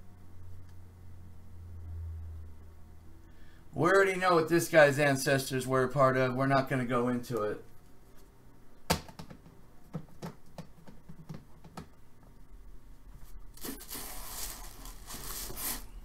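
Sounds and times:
cardboard and paper rustling: 13.6s - 15.9s.

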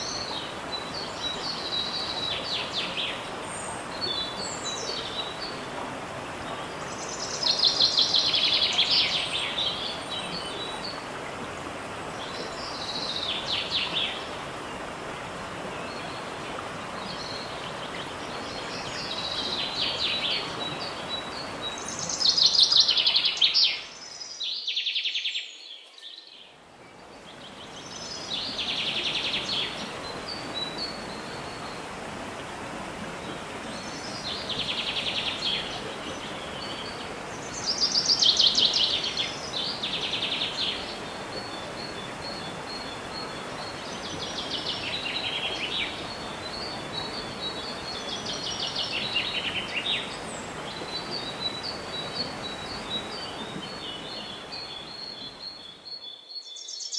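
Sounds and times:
waterfall rushing: 27.8s - 54.7s.

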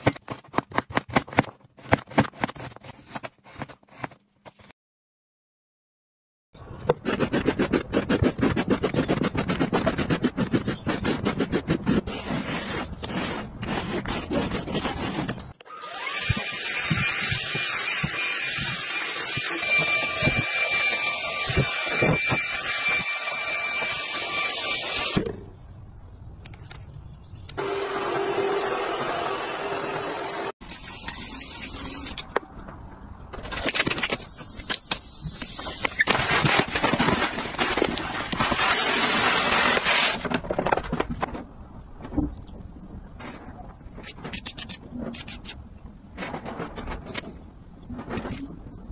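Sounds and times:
stick vacuum motor whine: 27.6s - 30.5s.

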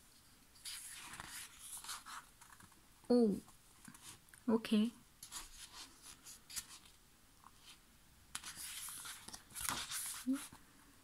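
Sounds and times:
pages turning with paper rustling: 0.6s - 2.8s, 5.2s - 10.6s.

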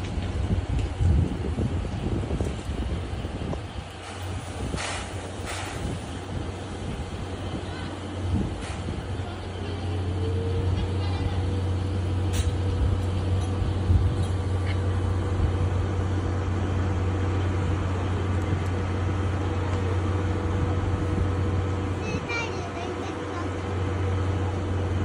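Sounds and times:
train mechanical hum: 0.0s - 25.0s.

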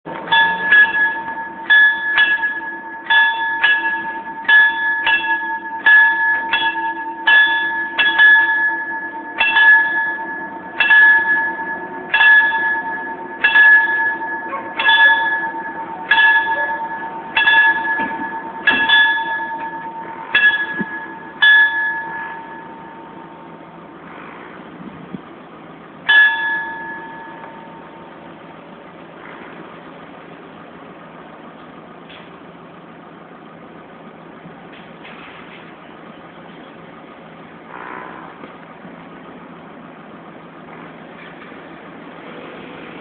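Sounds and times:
level crossing bell ringing: 0.2s - 23.8s, 26.1s - 28.4s.

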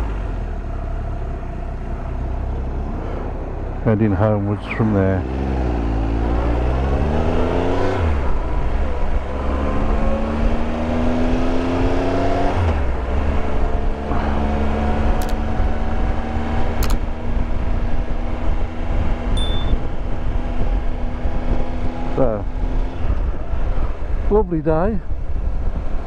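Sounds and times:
motorcycle engine accelerating: 4.8s - 24.2s
wind rumble on microphone: 6.2s - 26.0s
sharp clicks: 15.2s - 15.4s, 16.8s - 17.0s
short electronic beep: 19.4s - 19.8s.

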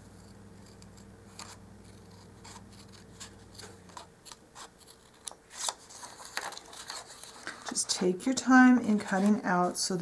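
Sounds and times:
scissors snipping paper: 0.2s - 7.8s.

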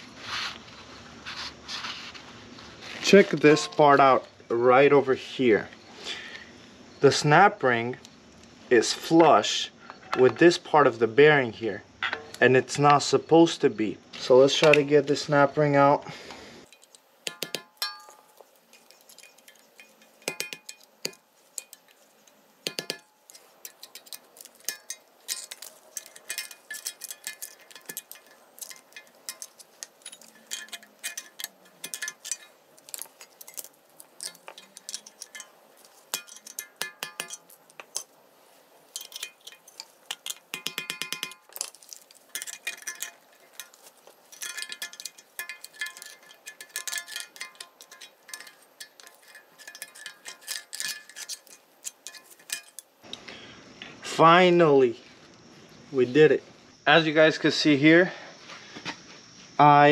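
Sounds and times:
metallic clinks of pliers: 22.7s - 38.1s.

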